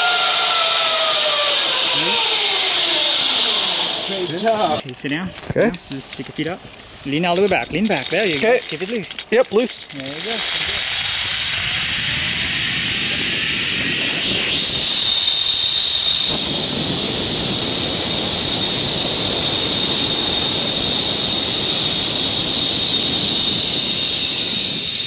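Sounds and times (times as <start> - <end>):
pulley whirring on cable: 0.0 - 4.8, 7.9 - 25.0
rushing wind: 10.3 - 25.0.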